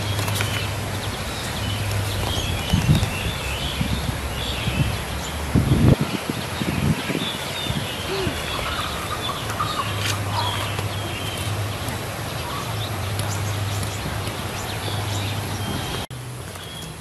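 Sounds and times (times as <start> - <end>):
birds chirping: 0.0 - 17.0
chickens clucking: 7.9 - 13.2.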